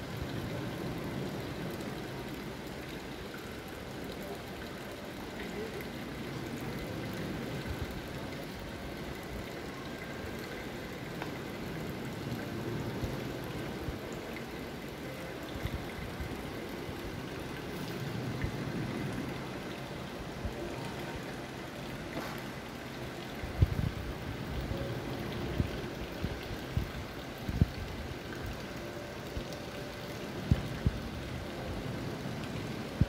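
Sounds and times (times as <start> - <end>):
fountain water trickling: 0.0 - 33.0.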